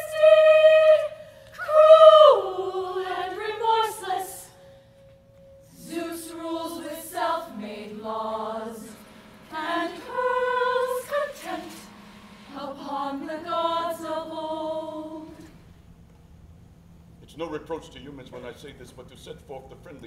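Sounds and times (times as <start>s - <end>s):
chorus of voices chanting: 0.0s - 4.6s, 5.7s - 15.5s.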